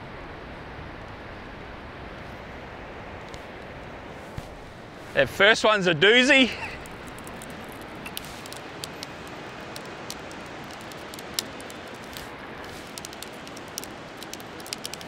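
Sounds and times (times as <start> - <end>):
wind: 0.0 - 15.0
faint clicks: 6.6 - 15.0.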